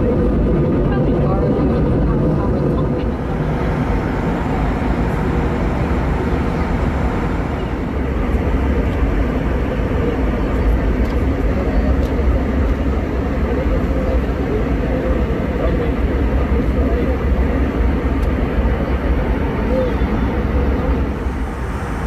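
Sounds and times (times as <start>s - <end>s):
airplane cabin engine drone: 0.0s - 22.0s.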